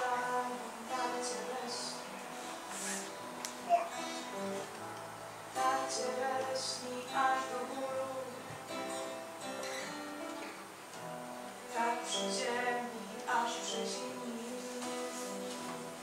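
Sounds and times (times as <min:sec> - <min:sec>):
person singing: 0:00.0 - 0:04.4, 0:05.5 - 0:09.3, 0:11.7 - 0:16.0
acoustic guitar: 0:00.0 - 0:16.0.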